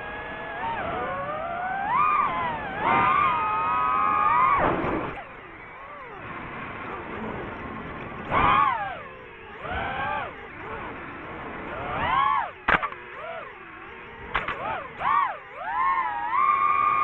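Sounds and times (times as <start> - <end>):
drone propellers whining: 0.0 - 17.0.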